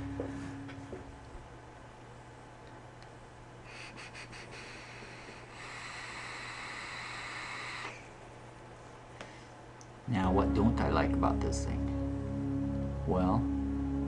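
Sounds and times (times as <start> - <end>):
short hissy puffs: 3.7 - 8.0
airy vape draw hiss: 3.7 - 8.1.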